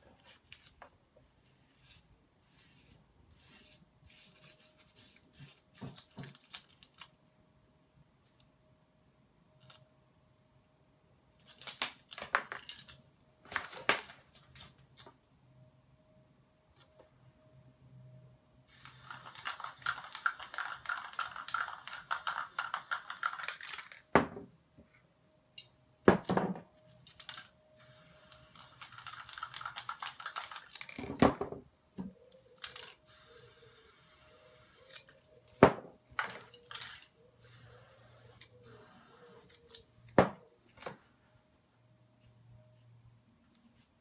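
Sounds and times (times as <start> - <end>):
spray paint can hissing: 18.7 - 23.6, 27.8 - 30.8, 33.1 - 35.0, 37.4 - 39.6.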